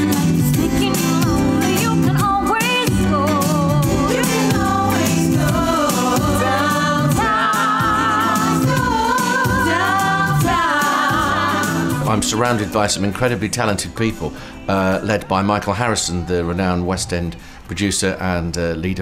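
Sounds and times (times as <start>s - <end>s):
woman singing with vibrato: 0.0s - 12.1s
backing voices singing: 0.0s - 12.8s.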